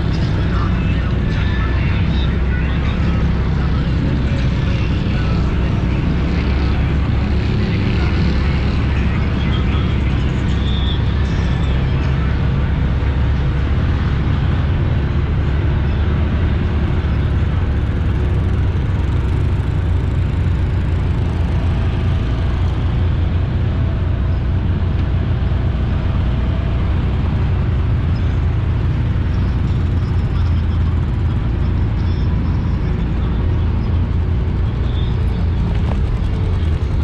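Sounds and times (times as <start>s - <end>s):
atv engine rumbling: 0.0s - 37.0s.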